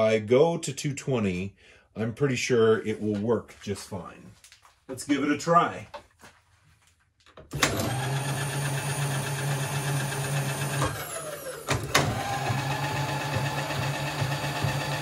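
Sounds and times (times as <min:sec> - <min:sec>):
power feed motor running: 0:07.6 - 0:15.0.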